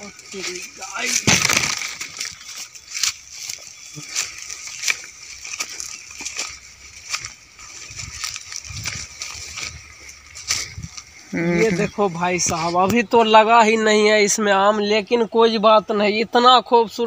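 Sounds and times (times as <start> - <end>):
footsteps through tall grass: 0.0 - 13.3.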